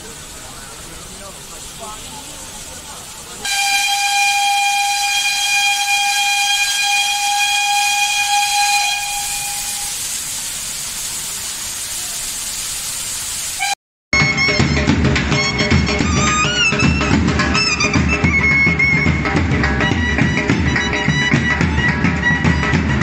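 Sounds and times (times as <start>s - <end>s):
steam hissing: 0.0s - 13.8s
steam locomotive whistle: 3.4s - 10.2s, 13.6s - 23.0s
music with drums: 14.2s - 23.0s.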